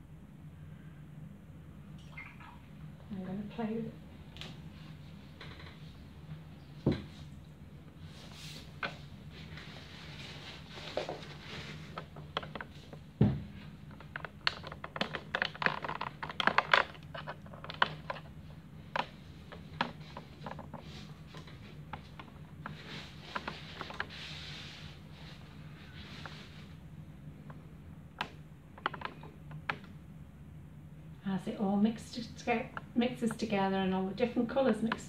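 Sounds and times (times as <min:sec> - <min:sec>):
steady low hum: 0:00.0 - 0:35.0
clicks taps and rustles of handling: 0:10.7 - 0:24.2, 0:27.4 - 0:30.0.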